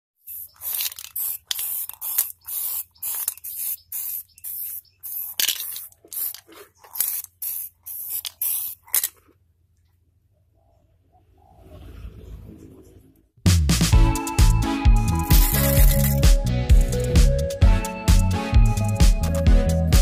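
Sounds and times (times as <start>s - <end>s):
spray can hissing bursts: 0.2s - 9.1s, 15.2s - 17.2s.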